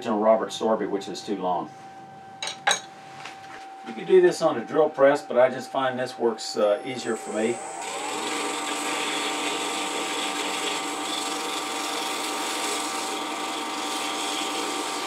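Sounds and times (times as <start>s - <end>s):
lathe motor whine: 6.4s - 15.0s
wood hissing against buffing wheel: 7.3s - 15.0s.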